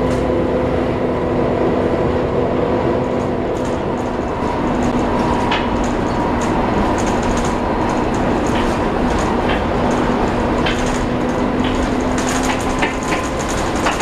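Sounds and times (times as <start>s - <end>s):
bus engine and road rumble: 0.0s - 14.0s
engine cooling fan whine: 0.0s - 14.0s
body fittings rattling: 3.2s - 14.0s.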